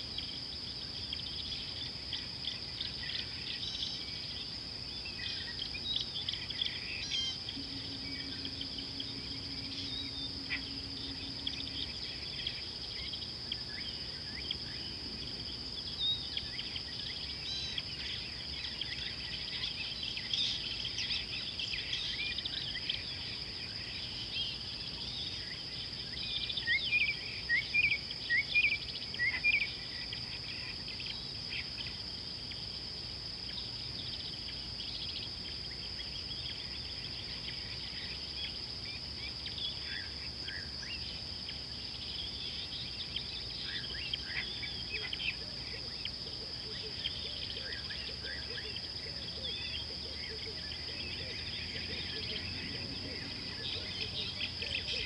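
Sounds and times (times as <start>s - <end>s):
bird calls: 5.2s - 13.6s
high-pitched insect drone: 5.2s - 24.7s
bird rising chirps: 7.1s - 12.5s.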